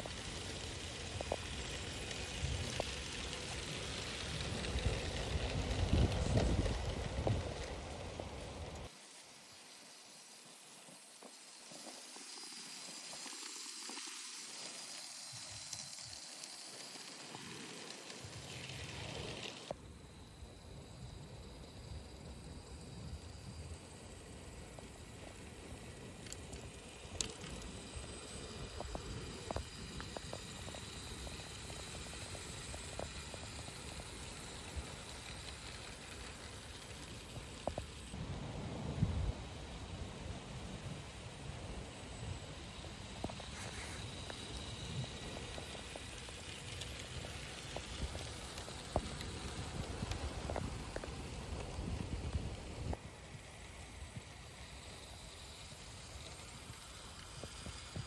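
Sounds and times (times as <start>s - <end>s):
model train wheels on rails: 0.0s - 58.0s
wind on microphone: 4.3s - 8.8s.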